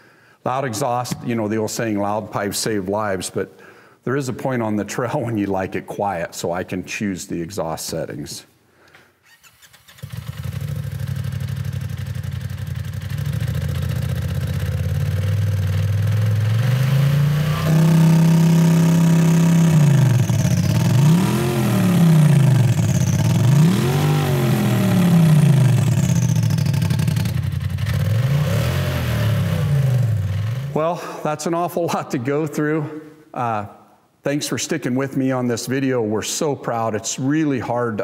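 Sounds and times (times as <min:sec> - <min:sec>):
engine revving through exhaust: 0:10.0 - 0:30.8.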